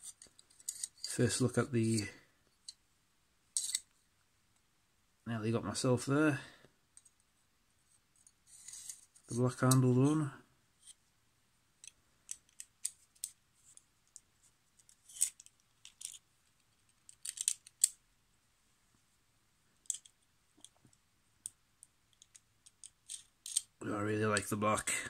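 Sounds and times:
small metal clicks and taps: 19.8 - 23.7.

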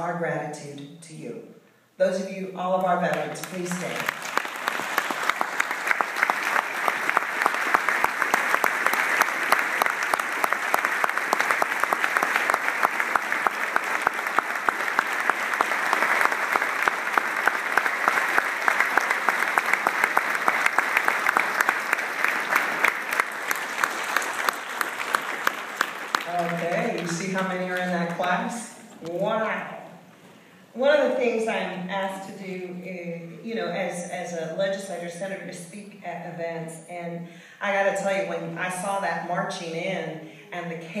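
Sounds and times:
large audience applauding: 3.4 - 28.4.

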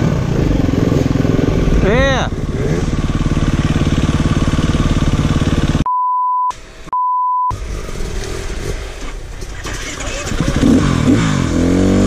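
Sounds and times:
motorcycle engine running: 0.0 - 5.9, 7.5 - 12.0
censor bleeps: 5.8 - 7.6.

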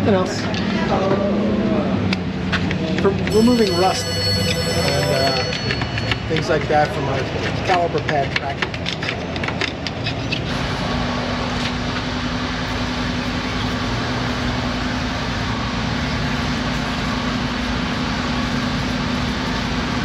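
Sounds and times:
machinery drone: 3.3 - 6.4.

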